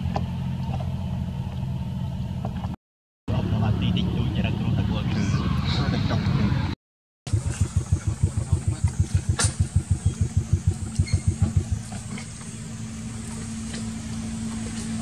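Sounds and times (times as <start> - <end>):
engine thumping and humming: 0.0 - 15.0.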